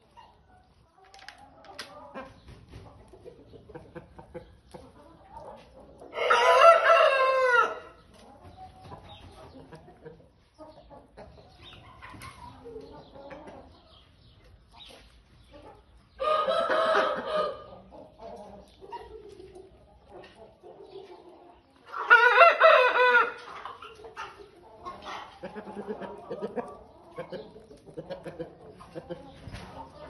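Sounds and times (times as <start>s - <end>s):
hen clucking: 0.0s - 30.0s
rooster crowing: 6.2s - 7.9s.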